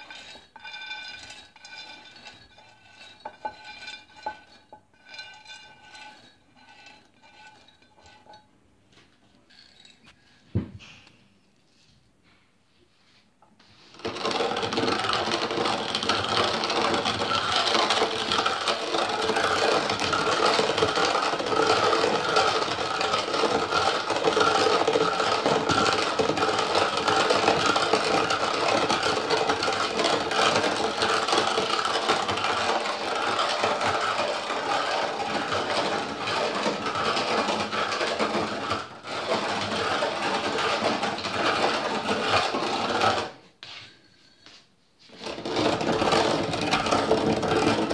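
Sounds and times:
hand-cranked meat grinder grinding: 0.0s - 8.4s, 13.9s - 43.4s, 45.1s - 47.9s.

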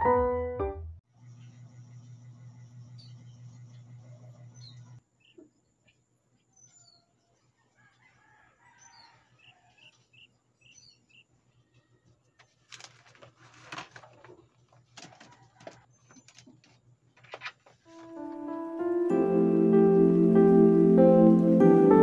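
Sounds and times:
rooster crowing: 7.6s - 9.8s
papers rustling on wooden desk: 12.4s - 18.6s.

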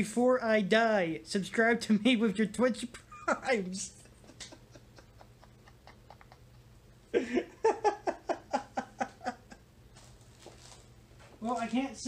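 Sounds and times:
man laughing: 3.0s - 9.7s.

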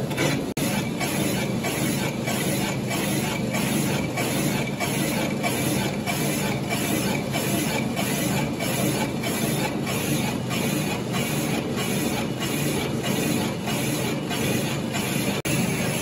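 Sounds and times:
rhythmic gritty cutting noise: 0.0s - 16.0s.

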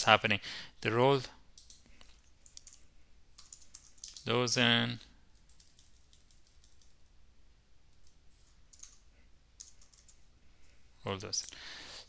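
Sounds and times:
faint keyboard typing: 1.6s - 4.4s, 5.0s - 7.1s, 7.9s - 11.6s.

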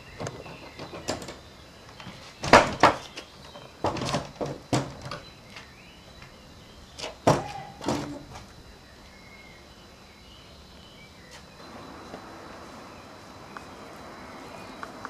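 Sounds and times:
wooden door knocking and clanking: 3.8s - 5.2s, 7.2s - 8.2s.

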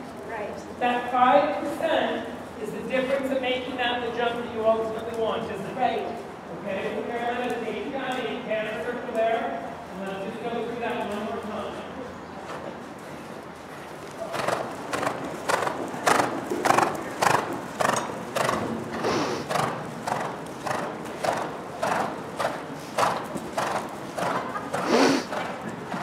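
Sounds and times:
horse hoofbeats on sand: 12.5s - 26.0s.

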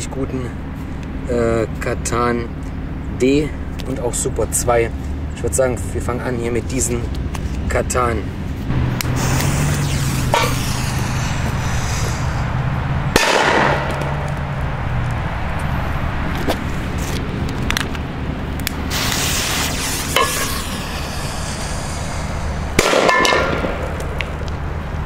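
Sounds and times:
firecrackers banging in metal pans: 22.8s - 24.0s.

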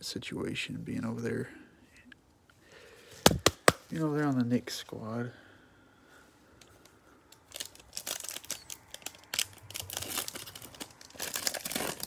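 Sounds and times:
wrapper crinkling: 7.2s - 12.0s
foil card pack tearing: 7.5s - 12.0s.

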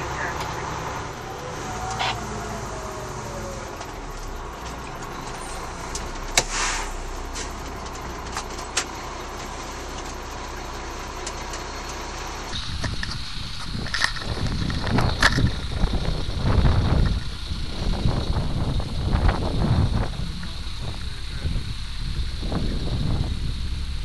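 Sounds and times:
diesel engine running: 0.0s - 24.0s
short air hiss: 6.4s - 7.5s.

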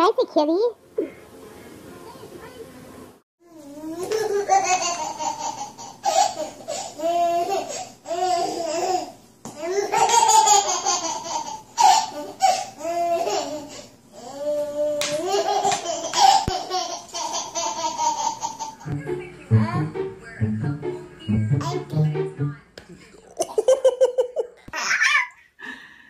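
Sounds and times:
baby laughing: 3.9s - 13.8s, 15.0s - 18.9s, 23.4s - 25.4s.

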